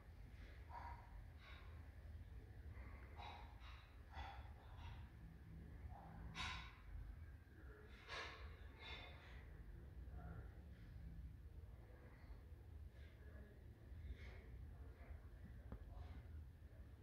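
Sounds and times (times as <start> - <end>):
faint breaths: 0.0 - 17.0
low room hum: 0.0 - 17.0.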